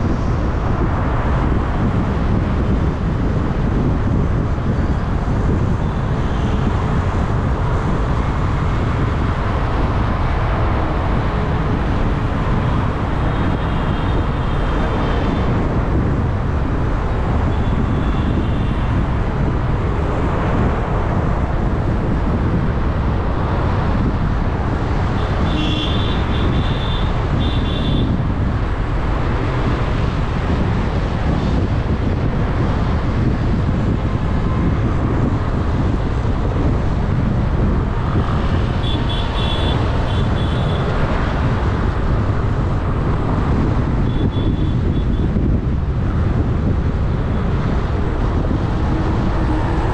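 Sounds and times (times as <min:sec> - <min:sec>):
road and traffic rumble: 0:00.0 - 0:49.9
car horn beeps: 0:25.4 - 0:28.1, 0:38.8 - 0:40.9, 0:44.1 - 0:45.3.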